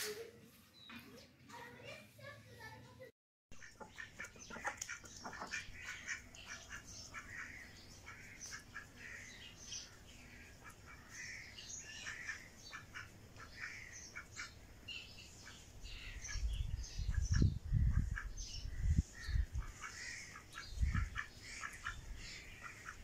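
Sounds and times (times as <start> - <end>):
ducks quacking: 3.6 - 9.3, 10.3 - 14.6, 19.6 - 23.0
small birds chirping: 3.6 - 23.0.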